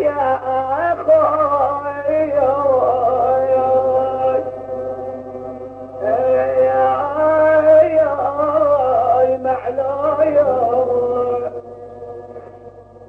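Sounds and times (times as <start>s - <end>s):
man chanting a lament: 0.0s - 4.5s, 6.0s - 11.6s
low recording hum: 0.0s - 13.0s.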